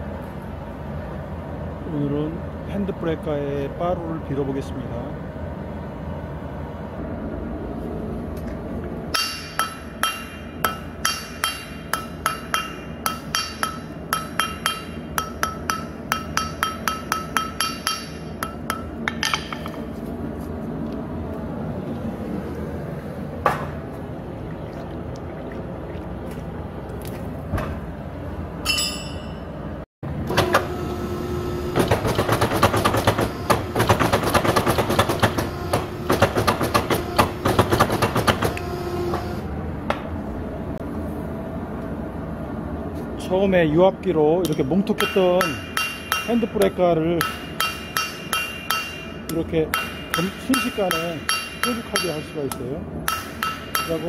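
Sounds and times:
steady machine hum: 0.0s - 54.0s
hammer striking metal on anvil: 9.1s - 19.9s, 28.6s - 29.5s, 44.4s - 54.0s
power hammer pounding: 31.7s - 39.3s.

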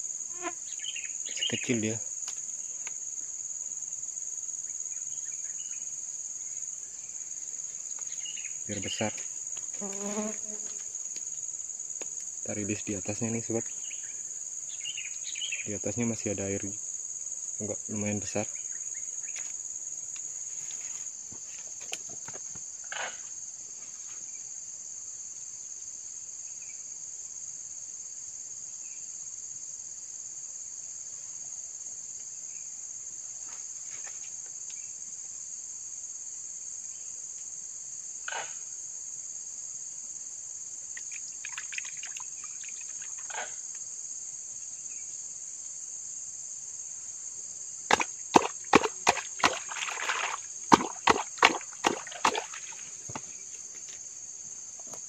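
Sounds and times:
high-pitched insect chorus: 0.0s - 55.0s
hands splashing in muddy water: 47.9s - 52.9s.

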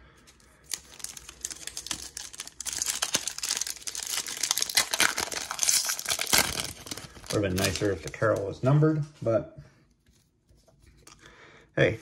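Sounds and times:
wrapper crinkling and tearing: 0.6s - 8.6s.

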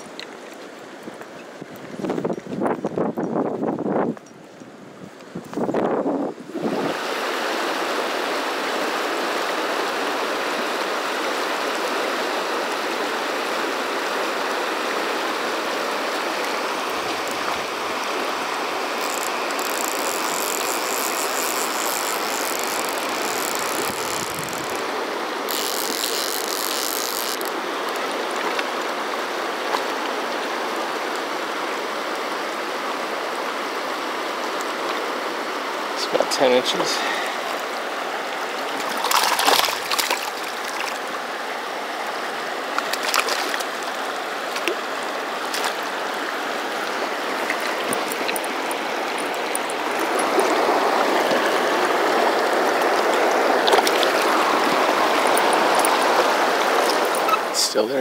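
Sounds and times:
river water rushing over riffle: 6.2s - 58.0s.

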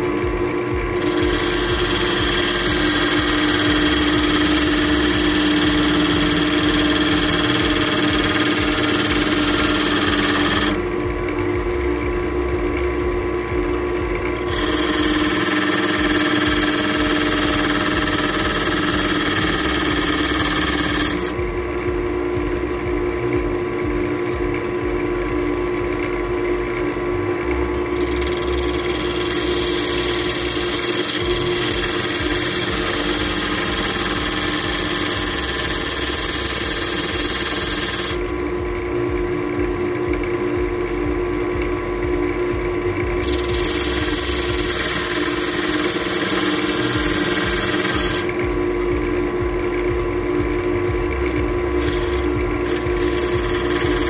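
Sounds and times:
wood lathe humming: 0.0s - 11.4s, 12.3s - 21.8s, 27.3s - 39.1s, 43.0s - 49.9s, 51.0s - 54.0s
gouge cutting wood: 1.0s - 10.8s, 14.4s - 21.3s, 28.0s - 38.3s, 43.2s - 48.3s, 51.8s - 54.0s.

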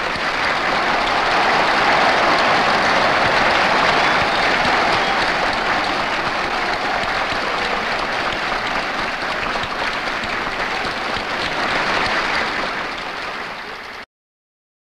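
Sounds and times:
crowd applauding: 0.0s - 14.1s.

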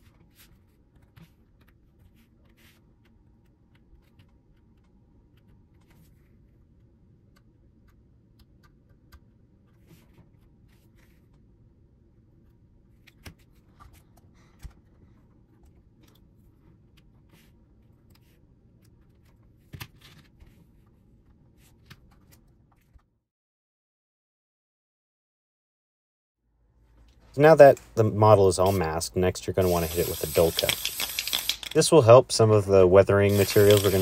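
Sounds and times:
low room hum: 0.0s - 23.2s, 26.4s - 34.0s
tape scratching and tapping: 29.6s - 31.9s, 33.3s - 34.0s.

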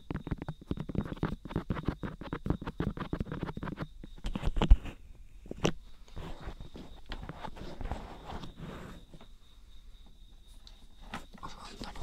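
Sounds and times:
fingers rubbing microphone: 0.0s - 5.0s.

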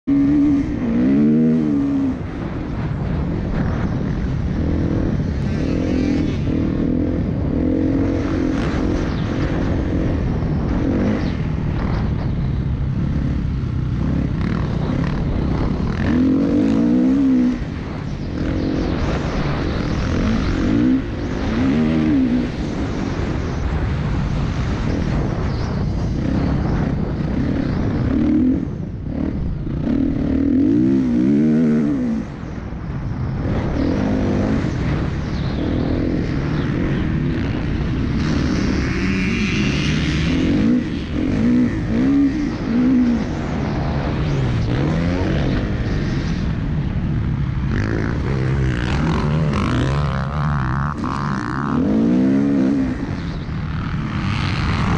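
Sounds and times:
dirt bike engine revving: 0.0s - 25.5s, 26.1s - 32.5s, 33.4s - 54.9s
wind rush: 0.0s - 54.9s.

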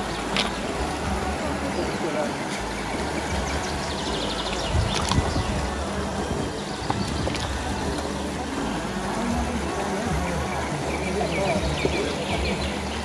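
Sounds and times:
low rumble: 0.0s - 13.0s
mountain stream rushing: 0.0s - 13.0s.

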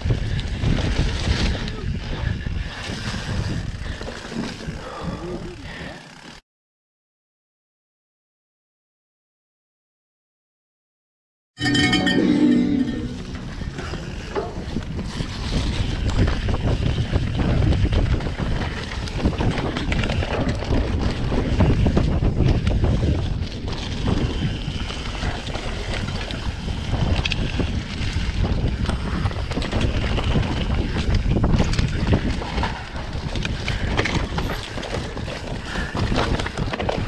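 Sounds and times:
wind buffeting microphone: 0.0s - 5.7s, 13.4s - 37.0s
dirt bike engine running: 13.3s - 37.0s.

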